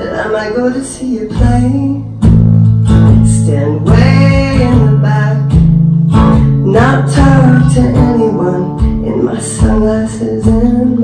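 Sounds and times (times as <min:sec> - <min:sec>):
acoustic guitar strumming: 0:00.0 - 0:11.0
woman singing: 0:03.0 - 0:05.5, 0:06.6 - 0:11.0.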